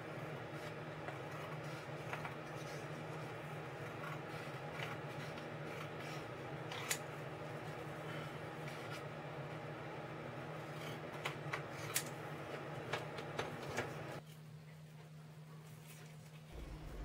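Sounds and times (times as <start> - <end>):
steady low hum: 0.0 - 15.7, 16.4 - 17.0.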